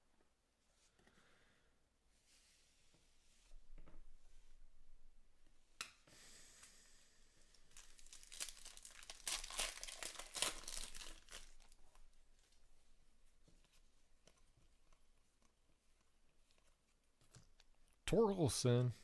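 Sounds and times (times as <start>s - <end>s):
wrapper tearing and crinkling: 7.7s - 12.1s.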